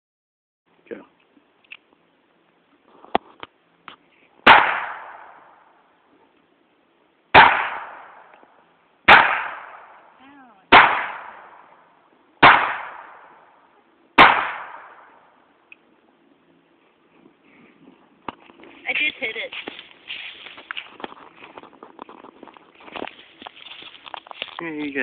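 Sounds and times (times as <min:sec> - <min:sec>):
pistol shots with echo: 0:04.4 - 0:05.6, 0:07.4 - 0:08.3, 0:09.1 - 0:10.1, 0:10.7 - 0:11.8, 0:12.4 - 0:13.5, 0:14.2 - 0:15.3.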